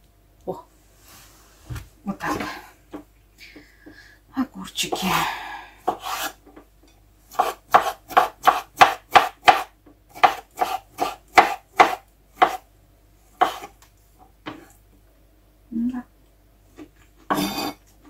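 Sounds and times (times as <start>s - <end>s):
knife chopping on wooden board: 5.9s - 6.4s, 7.3s - 12.6s, 13.4s - 13.8s.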